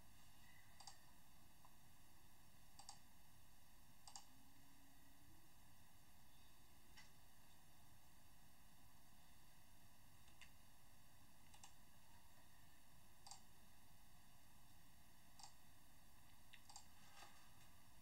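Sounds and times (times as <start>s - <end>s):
faint computer mouse clicks: 0.8s - 1.0s, 2.8s - 3.0s, 4.0s - 4.3s, 16.3s - 17.0s.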